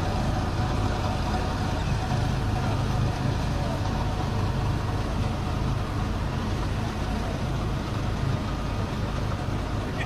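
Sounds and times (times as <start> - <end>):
road roller engine humming: 0.0 - 10.0.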